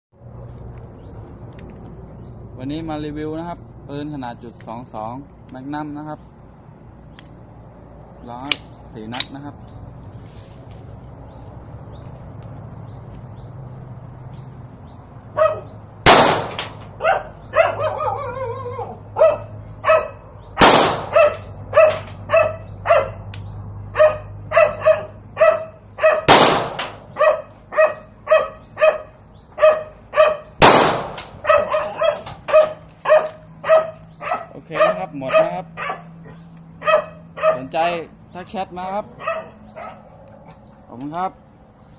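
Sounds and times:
dog barking: 15.3 - 15.8, 17.0 - 20.3, 21.0 - 23.3, 23.9 - 26.3, 27.1 - 30.6, 31.4 - 37.8, 39.1 - 40.6
handgun shots: 16.0 - 16.9, 20.6 - 22.1, 26.3 - 27.0, 30.6 - 32.7.

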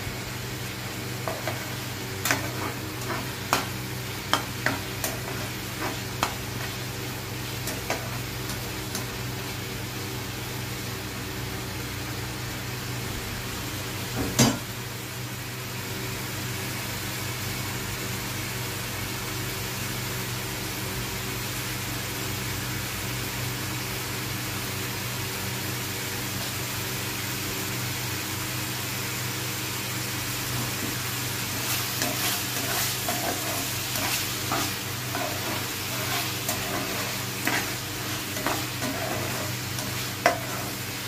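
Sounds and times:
steady low hum: 0.0 - 9.9, 30.6 - 41.0
gravy sizzling in a frying pan: 0.0 - 41.0.

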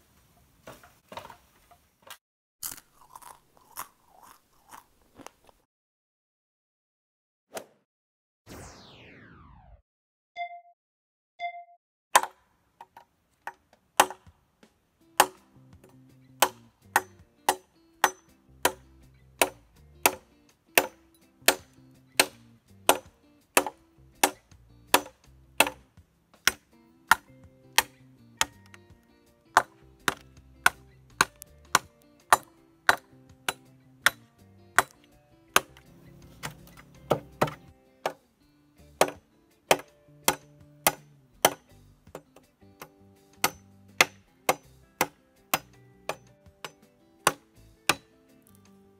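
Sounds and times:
machete chopping bamboo: 12.2 - 14.3, 15.2 - 28.9, 29.5 - 38.2, 39.0 - 48.2.

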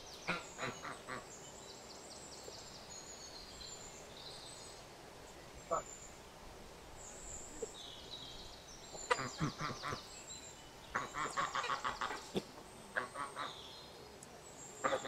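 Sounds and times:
geese honking: 10.9 - 12.3.

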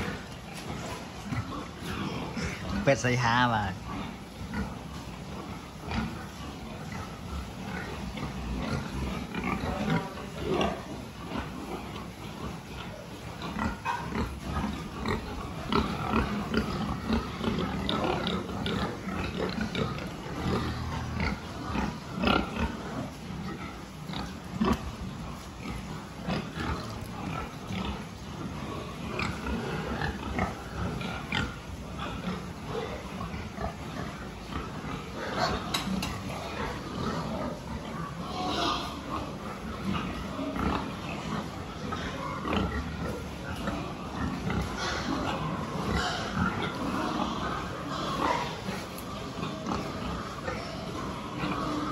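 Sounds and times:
young pigs grunting: 0.0 - 51.9.

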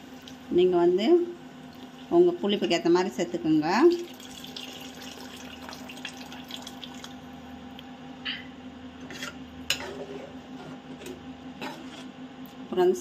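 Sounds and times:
water pouring into a pan: 3.9 - 7.2.

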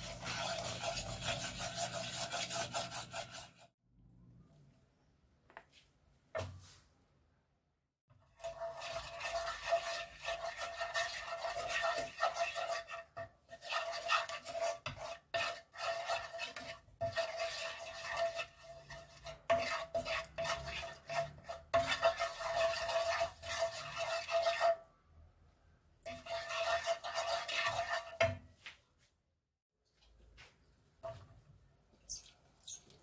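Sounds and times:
wooden spoon scraping a pan: 0.0 - 3.7, 8.1 - 24.9, 26.0 - 28.5.

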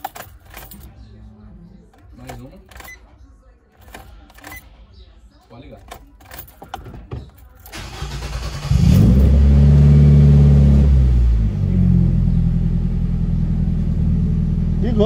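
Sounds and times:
engine starter cranking: 5.8 - 9.4
car engine idling: 6.0 - 15.0.

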